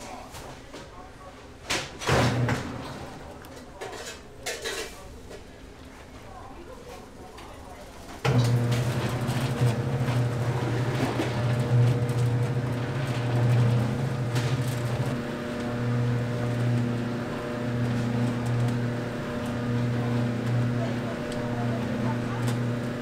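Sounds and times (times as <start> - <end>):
electric motor humming: 8.3 - 23.0.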